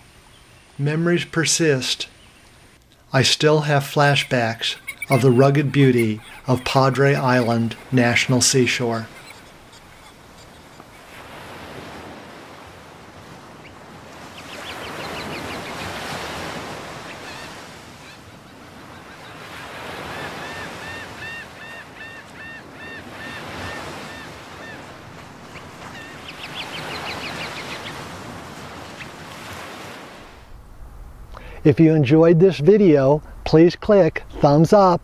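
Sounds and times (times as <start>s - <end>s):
gulls calling: 0.0s - 30.2s
surf breaking on beach: 11.1s - 21.2s.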